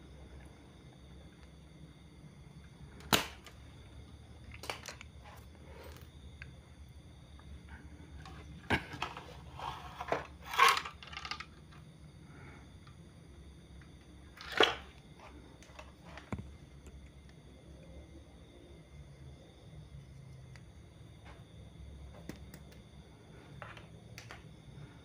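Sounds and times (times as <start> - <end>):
faint low hum: 0.0 - 25.0.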